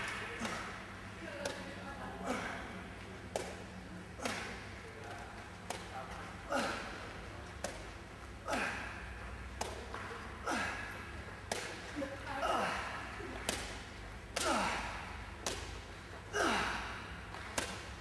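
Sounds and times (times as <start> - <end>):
ball slaps and thuds echoing: 0.0 - 1.7, 3.3 - 4.8, 5.6 - 6.0, 7.4 - 8.8, 9.4 - 11.9, 13.2 - 15.9, 16.7 - 18.0.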